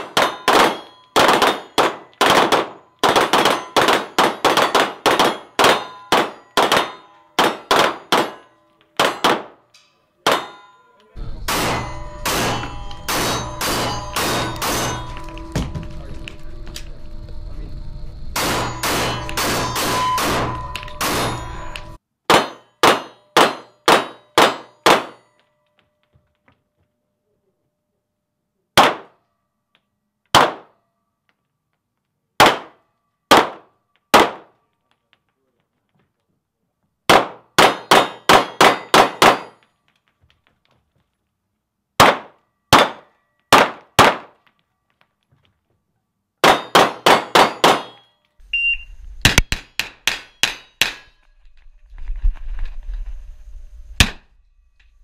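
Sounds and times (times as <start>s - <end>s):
pistol shots echoing indoors: 11.4s - 15.0s, 18.4s - 25.2s, 28.8s - 29.2s, 30.3s - 30.8s, 32.4s - 34.6s, 37.1s - 39.5s, 42.0s - 44.4s, 46.4s - 48.0s
short high beep: 48.5s - 49.0s.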